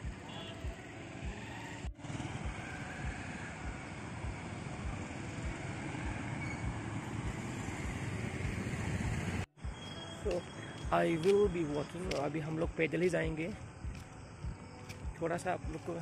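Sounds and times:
background music beat: 0.0 - 16.0
motorcycles passing: 0.1 - 9.5
auto-rickshaw engine: 0.1 - 9.8.

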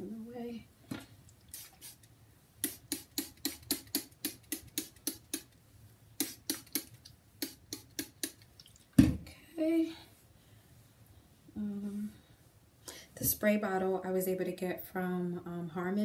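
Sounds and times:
spray bottle spritzes: 1.5 - 5.5, 6.2 - 8.4.

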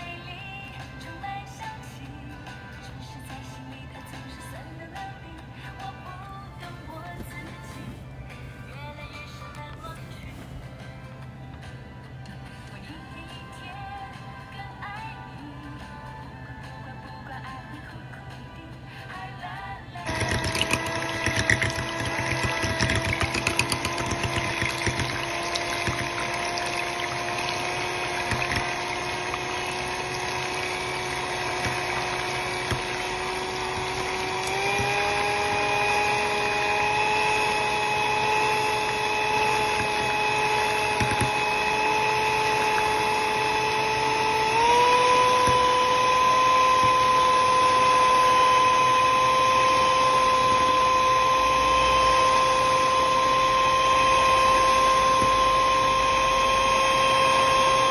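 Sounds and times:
electric hand mixer whirring: 0.0 - 9.2, 19.9 - 57.9.

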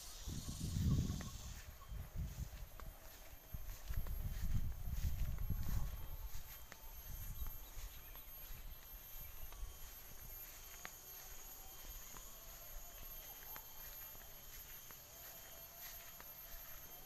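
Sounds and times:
high-pitched insect drone: 0.0 - 17.0
wind rumbling on microphone: 0.1 - 2.9, 3.5 - 6.5.

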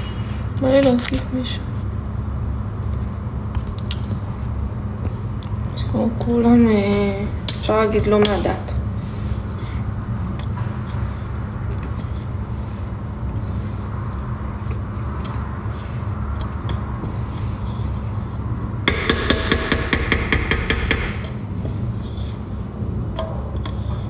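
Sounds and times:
utensil tapping metal bowl: 18.9 - 21.4.

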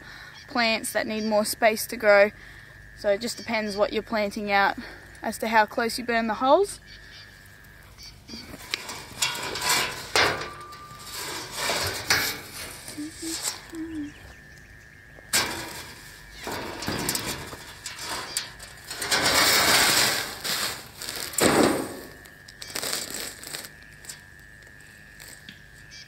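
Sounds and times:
metal sheet knocks and rattles: 8.8 - 12.5, 15.4 - 22.1
rustling on plastic mat: 15.6 - 23.8.

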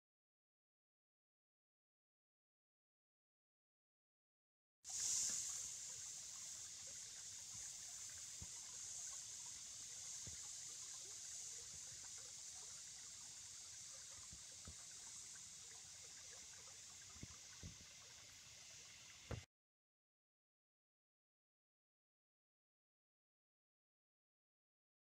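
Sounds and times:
water trickling over gravel: 4.9 - 19.3.

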